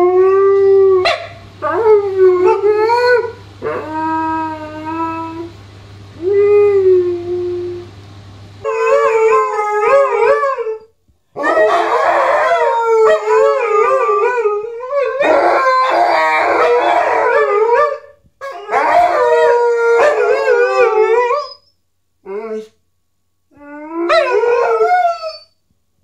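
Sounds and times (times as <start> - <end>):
dogs howling: 0.0 - 5.5, 8.6 - 21.6, 23.6 - 25.5.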